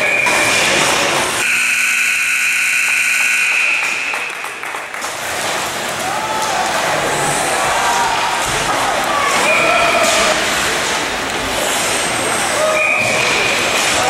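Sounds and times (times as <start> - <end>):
scoreboard buzzer blast: 1.4 - 4.2.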